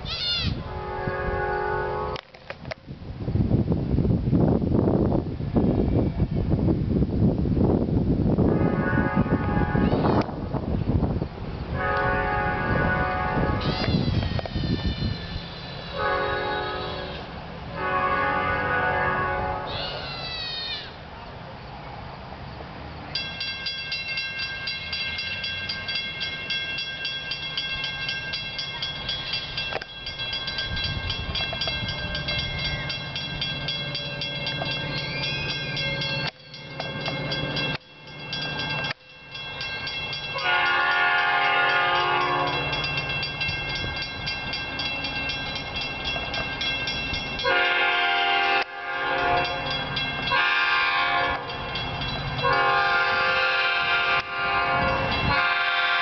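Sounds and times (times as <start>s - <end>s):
train hum: 0.0s - 56.0s
train horn blasts: 0.4s - 2.3s, 8.5s - 10.4s, 11.7s - 20.0s, 40.3s - 43.0s, 47.4s - 51.6s, 52.4s - 56.0s
crossing bell ringing: 23.0s - 56.0s.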